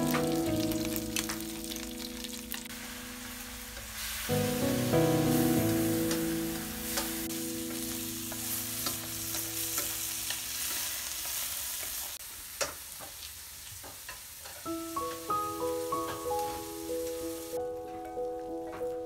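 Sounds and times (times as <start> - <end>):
background music: 0.0 - 9.7, 14.7 - 19.0
shrimp sizzling in oil: 0.0 - 19.0.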